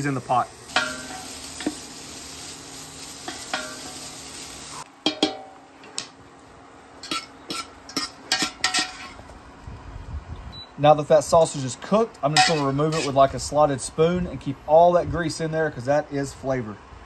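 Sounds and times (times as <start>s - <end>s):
sausage sizzling in a pot: 0.0s - 4.9s, 7.0s - 9.2s
wire skimmer scraping metal pot: 12.3s - 13.3s.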